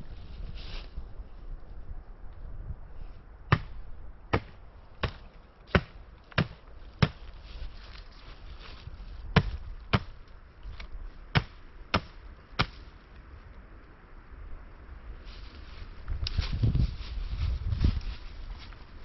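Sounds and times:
wood being chopped: 3.5 - 7.3, 9.4 - 10.2, 11.3 - 12.8.

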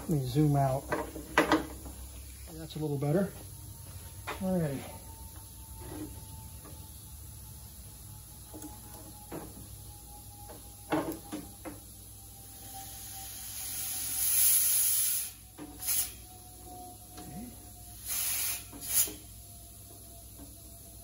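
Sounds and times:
compressed air hissing: 12.6 - 16.3, 17.9 - 19.4.

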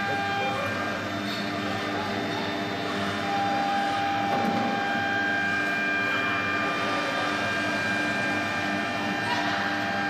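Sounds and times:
electric machinery hum: 0.0 - 10.0
whining tones: 0.0 - 10.0.

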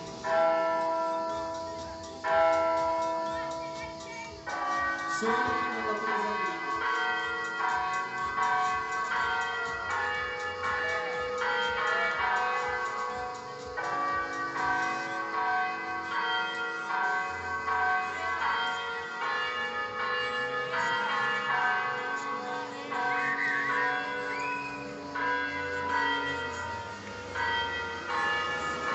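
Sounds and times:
electronic church bells ringing: 0.0 - 28.9.

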